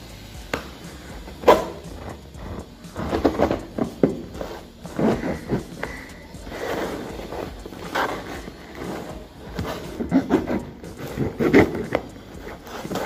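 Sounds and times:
packing tape tearing: 2.9 - 13.0.

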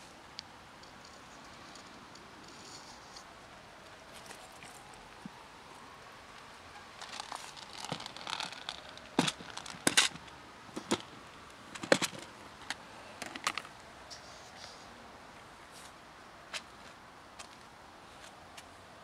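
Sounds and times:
dry cat food rustling: 6.8 - 14.8
plastic clicks and knocks: 11.7 - 12.3.

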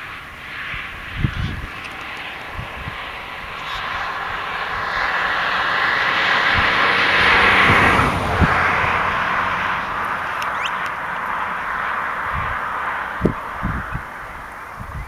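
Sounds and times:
aircraft engine rushing overhead: 0.0 - 15.0.

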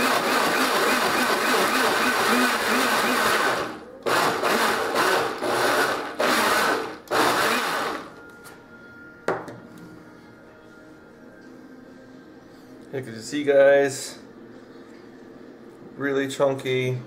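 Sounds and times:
blender motor chopping: 0.0 - 8.1.

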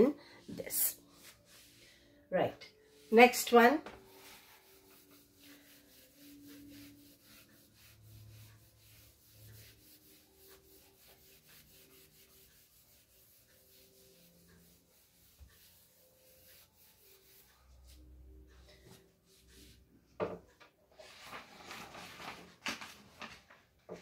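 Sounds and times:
eraser rubbing whiteboard: 4.0 - 18.0.

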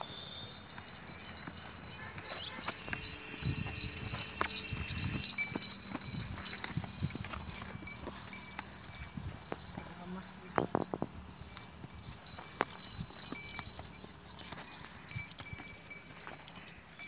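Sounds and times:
horse hoofbeats on grassy ground: 0.0 - 17.0.

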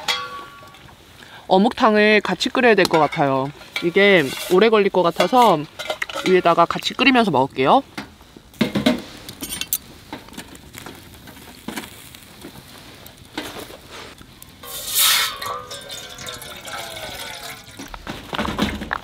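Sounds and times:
utensils clinking: 14.6 - 18.0
liquid pouring into pot: 14.7 - 18.0.

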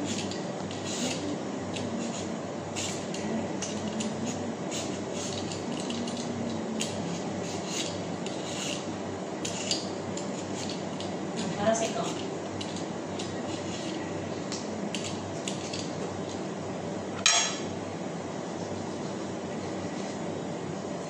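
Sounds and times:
peeler scraping mango skin: 0.0 - 14.1
steady low hum: 0.0 - 21.0.

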